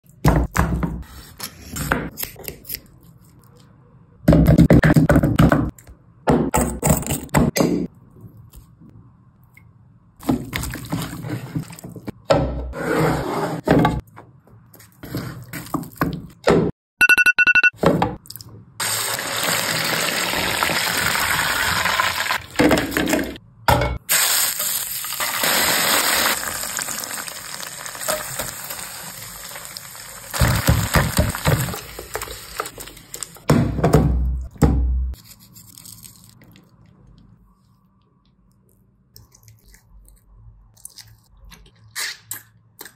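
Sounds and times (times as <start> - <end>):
pulsed electronic beep: 17.0 - 17.8
frying sizzle: 18.8 - 23.4, 24.1 - 33.4.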